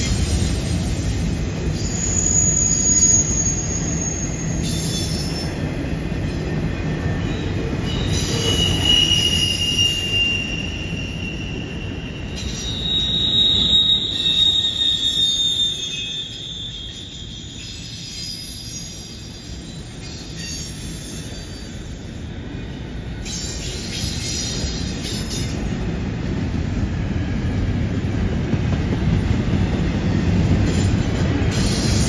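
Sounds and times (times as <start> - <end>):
freight train rumbling past: 0.0 - 32.0
high-pitched wheel squeal: 1.7 - 5.2, 7.8 - 19.2.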